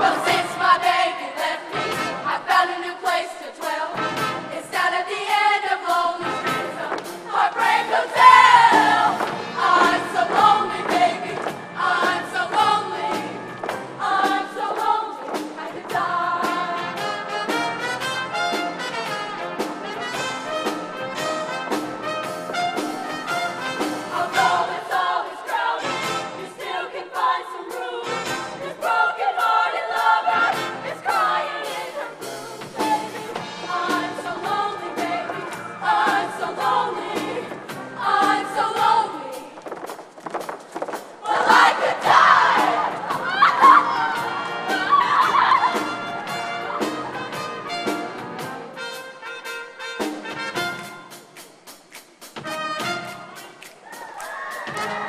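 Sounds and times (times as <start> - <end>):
live band playing: 0.0 - 2.7, 3.7 - 26.5, 30.0 - 40.2, 41.0 - 55.0
choir singing: 0.0 - 17.4, 22.8 - 39.6, 41.2 - 48.8.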